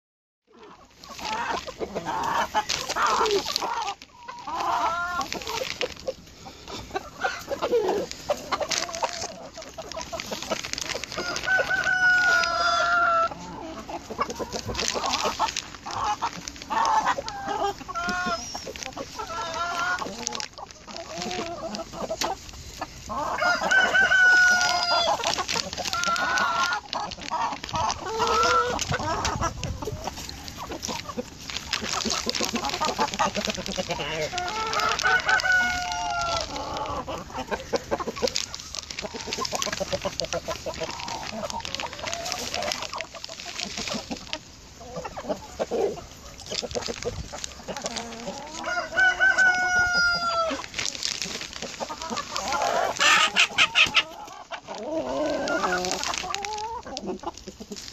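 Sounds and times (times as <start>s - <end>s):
chickens clucking: 0.5s - 57.9s
rooster crowing: 23.4s - 25.1s, 48.6s - 50.6s.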